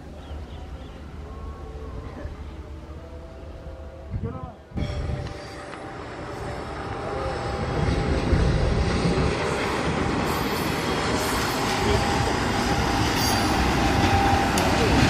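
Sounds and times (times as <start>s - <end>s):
diesel locomotive engine rumbling: 0.0s - 15.0s
train wheels on rails: 4.8s - 15.0s.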